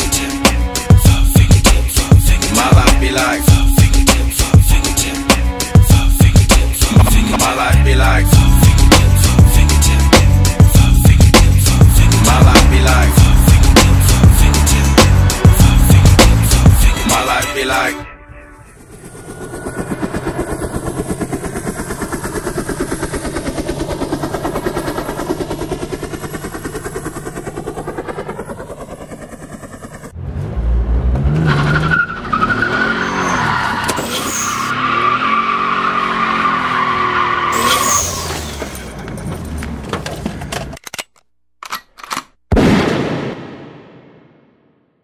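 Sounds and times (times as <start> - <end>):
car engine revving: 6.4 - 17.5, 18.5 - 26.1, 30.1 - 39.8
tyres squealing: 31.5 - 38.8.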